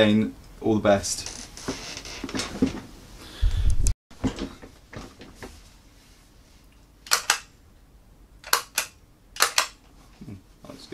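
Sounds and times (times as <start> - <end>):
sharp clicks: 7.0 - 7.5, 8.4 - 9.8.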